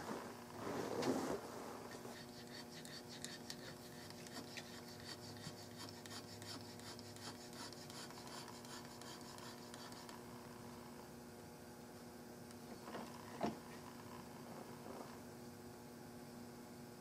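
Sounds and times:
checkering cutter scraping wood: 1.9s - 10.2s.

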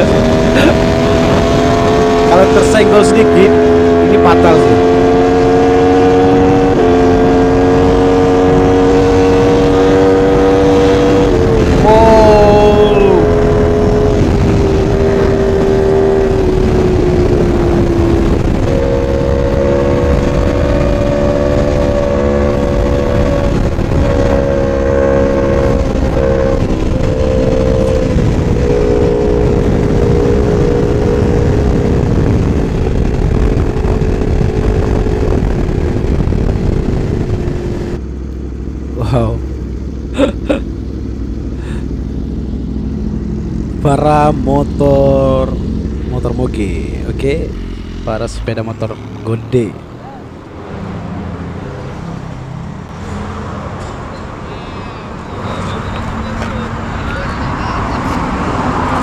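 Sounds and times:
wind rushing over microphone: 0.0s - 38.2s
motorcycle engine at high revs: 0.0s - 59.0s.

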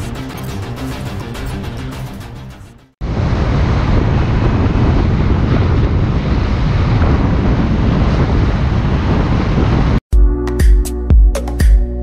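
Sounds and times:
vehicle and road noise: 0.0s - 10.0s
wind rushing over microphone: 3.0s - 10.0s.

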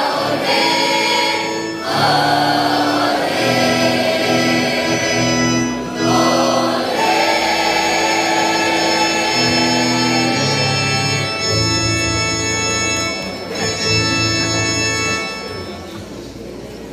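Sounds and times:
mixed choir singing chords: 0.0s - 11.5s.

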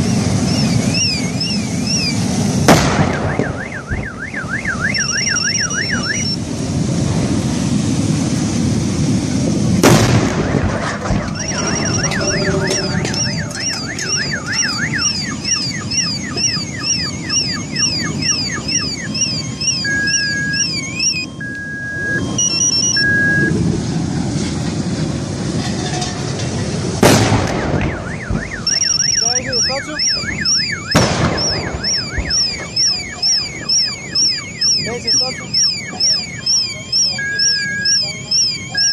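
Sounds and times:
repeating alarm beep: 0.0s - 2.3s, 3.1s - 6.4s, 10.4s - 23.6s, 27.6s - 38.9s
car alarms wailing: 0.0s - 6.4s, 10.3s - 23.8s, 27.4s - 38.9s
steady low rumble: 0.0s - 38.9s
gas cylinders bursting: 9.8s - 21.3s, 25.3s - 38.9s.

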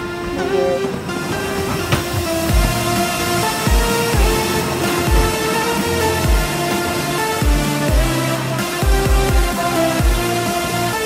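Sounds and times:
electronic dance music: 0.0s - 11.0s
deep kick drums: 2.4s - 6.7s, 7.4s - 10.3s.

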